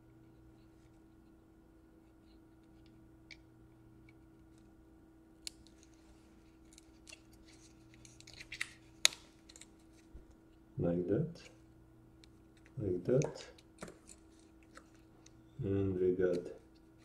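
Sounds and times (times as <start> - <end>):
steady low hum: 0.0 - 17.0
clicks and crinkles of cable: 5.5 - 10.1.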